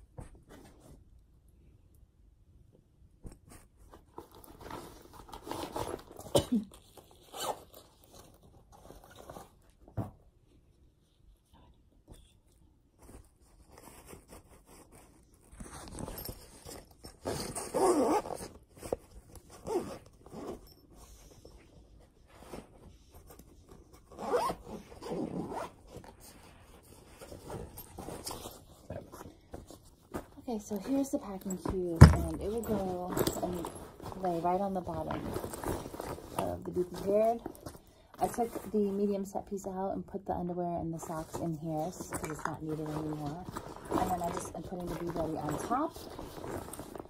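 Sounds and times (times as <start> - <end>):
clothes rustling: 12.9 - 39.4, 40.8 - 47.0
fabric zipper pulled: 17.2 - 18.6, 19.6 - 20.6, 24.2 - 25.8.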